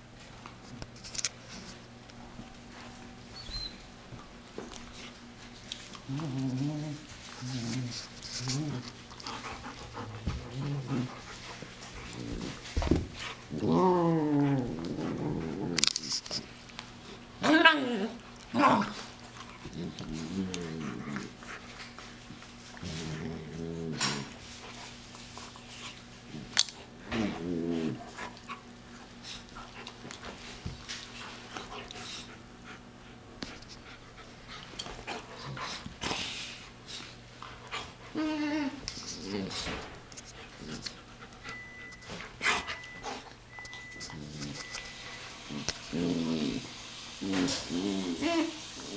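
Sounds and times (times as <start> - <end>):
steady low hum: 0.0 - 46.7
dogs growling: 5.9 - 16.2, 17.4 - 24.4, 26.2 - 30.2, 45.4 - 48.9
puppies panting: 7.1 - 13.5, 39.6 - 43.9.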